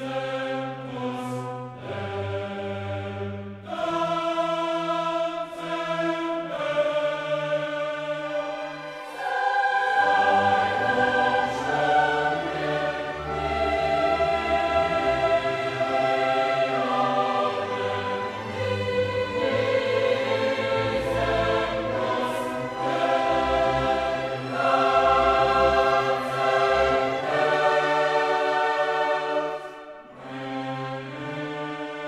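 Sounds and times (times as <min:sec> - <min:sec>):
choir singing held chords: 0:00.0 - 0:32.0
orchestra playing: 0:08.2 - 0:32.0.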